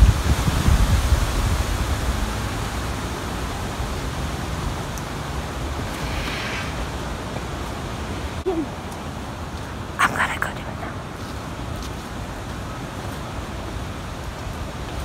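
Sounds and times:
wind buffeting microphone: 0.0s - 8.6s.

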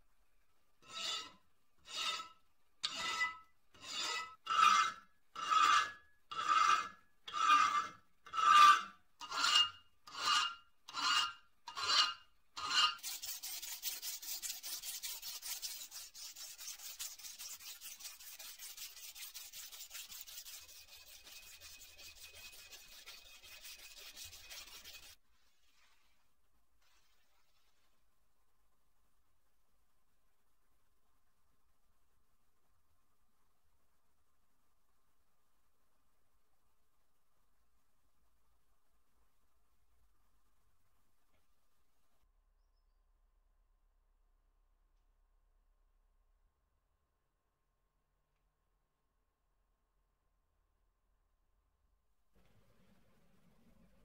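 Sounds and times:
file strokes on metal ringing: 0.8s - 25.2s
sanding scratching on metal: 2.9s - 25.2s.

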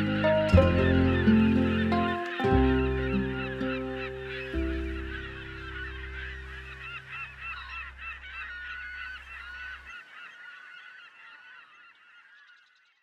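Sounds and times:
low music drone: 0.0s - 9.4s
gulls calling: 0.0s - 13.0s.

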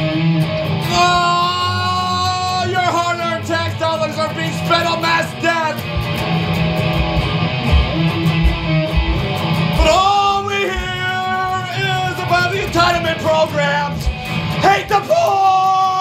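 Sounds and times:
strummed guitar: 0.0s - 16.0s
person singing: 0.8s - 4.6s, 9.7s - 16.0s
drum beats: 4.6s - 15.4s.

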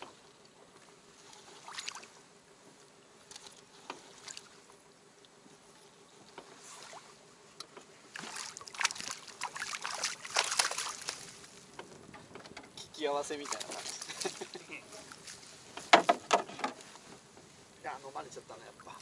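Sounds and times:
light knocks and splashes: 0.0s - 2.2s, 3.2s - 5.3s, 6.2s - 16.9s
water lapping against boat hull: 0.0s - 17.9s.

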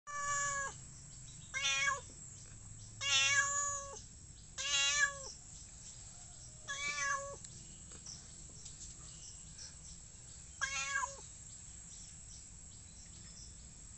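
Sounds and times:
cat meowing: 0.1s - 0.8s, 1.5s - 2.1s, 3.0s - 4.0s, 4.6s - 5.3s, 6.7s - 7.4s, 10.6s - 11.2s.

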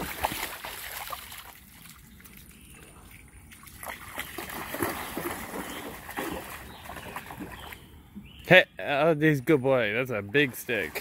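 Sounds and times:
dog splashing through water: 0.0s - 7.8s.

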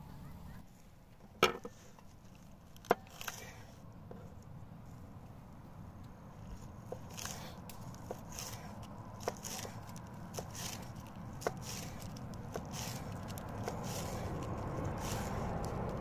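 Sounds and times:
knife slicing crisp lettuce: 6.8s - 16.0s.

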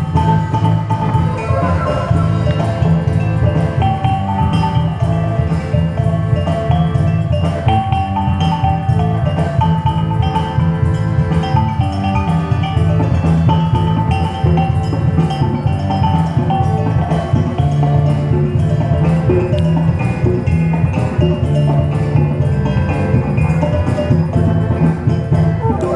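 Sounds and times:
bass: 0.0s - 25.9s
pot gongs playing ringing melody: 0.0s - 25.9s
regular drum beats: 0.0s - 25.9s.

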